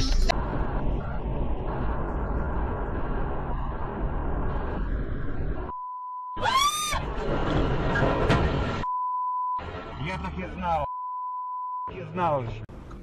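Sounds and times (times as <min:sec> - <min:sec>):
car engine and road noise: 0:00.0 - 0:13.0
steady beep tone: 0:05.7 - 0:06.4, 0:08.8 - 0:09.7, 0:10.7 - 0:12.1.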